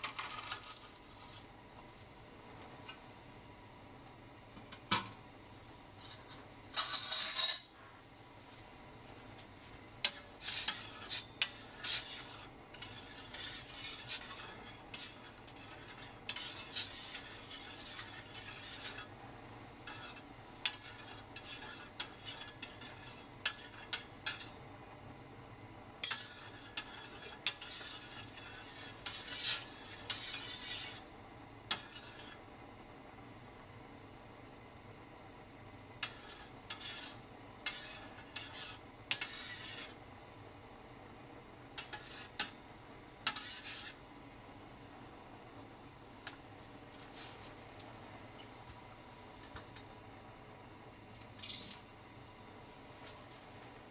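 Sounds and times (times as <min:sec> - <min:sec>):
metal spoon stirring in saucepan: 0:00.0 - 0:01.5, 0:06.0 - 0:07.8, 0:10.0 - 0:19.2, 0:19.8 - 0:24.7, 0:26.0 - 0:32.5, 0:36.0 - 0:40.0, 0:41.7 - 0:42.6, 0:43.2 - 0:44.0.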